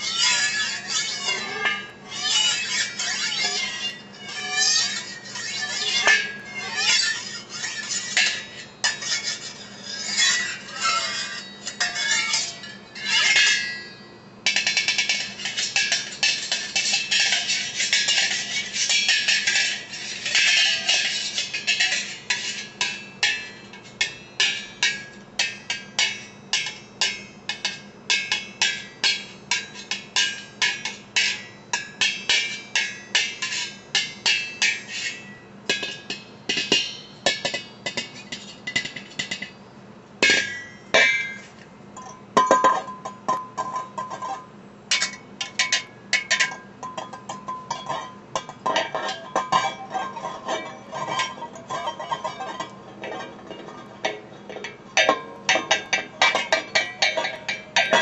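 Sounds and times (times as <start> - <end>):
whisk clinking on pot lid: 14.5 - 39.5, 42.5 - 58.0.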